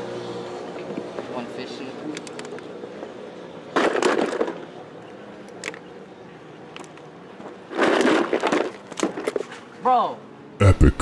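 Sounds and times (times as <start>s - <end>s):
clattering in plastic cooler: 3.8s - 4.7s, 7.7s - 9.6s.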